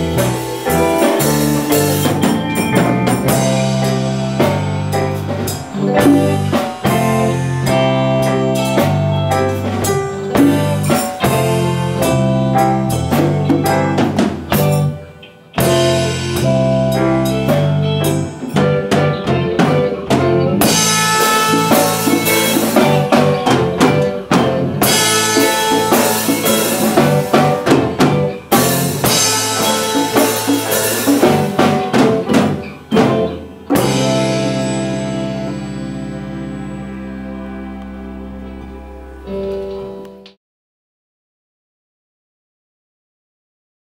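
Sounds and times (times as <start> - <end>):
congas: 0.0 - 38.4
drum kit: 0.0 - 40.3
electric guitar: 0.0 - 40.4
keyboard: 0.0 - 40.4.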